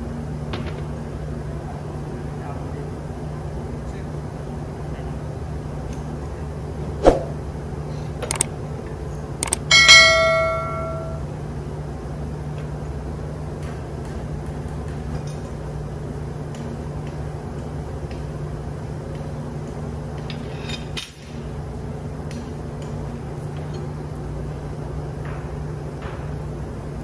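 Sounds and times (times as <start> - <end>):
engine room machinery hum: 0.0 - 27.0
metal tools clinking: 9.4 - 11.2.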